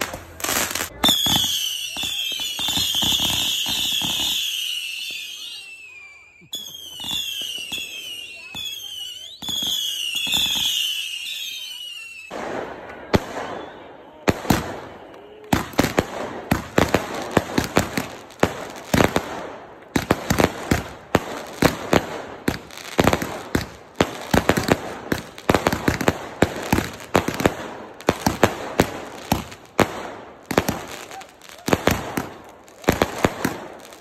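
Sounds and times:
fireworks bangs and crackles: 0.0s - 34.0s.

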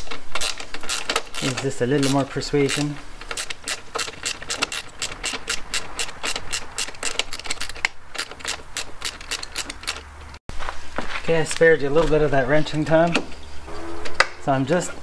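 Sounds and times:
ratcheting wrench clicking: 0.0s - 10.2s.

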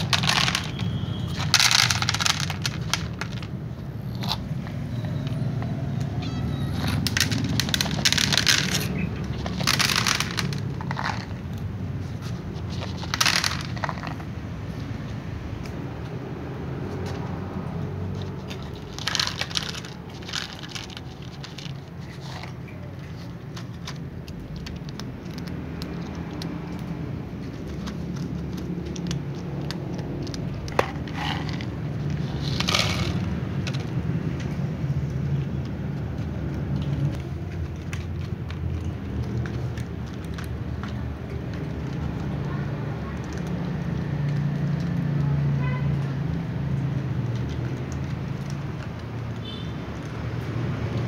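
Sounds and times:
food rattling from plastic cup: 0.0s - 3.6s, 6.8s - 11.5s, 12.2s - 14.3s, 18.2s - 34.1s
cat crunching dry kibble: 0.0s - 51.0s.

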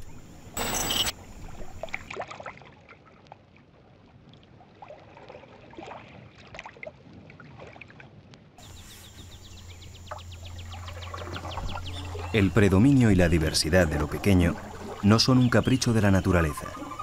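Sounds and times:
high chirps: 0.6s - 1.1s
low hum: 8.6s - 15.0s
water bubbling and gurgling: 10.0s - 17.0s.

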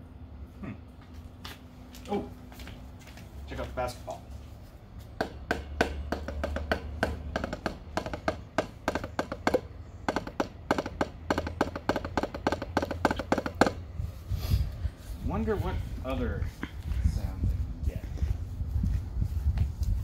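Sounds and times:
low steady hum: 0.0s - 20.0s
drumsticks tapping on a basketball: 5.2s - 13.8s.

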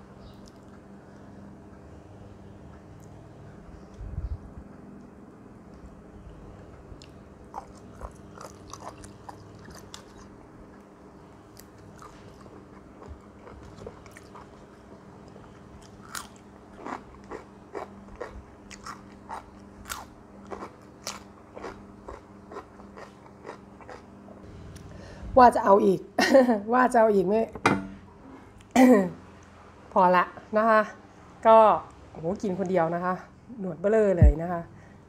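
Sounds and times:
person chewing raw cucumber: 6.7s - 10.9s, 11.5s - 24.2s.

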